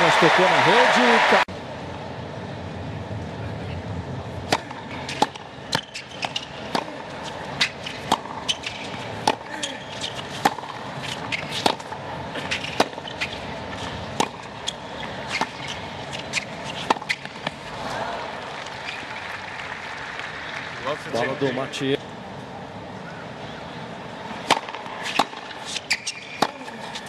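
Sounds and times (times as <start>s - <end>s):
crowd noise: 0.0s - 2.1s, 2.9s - 25.7s
tennis ball struck and bouncing: 4.5s - 7.0s, 7.6s - 17.6s, 24.4s - 26.7s.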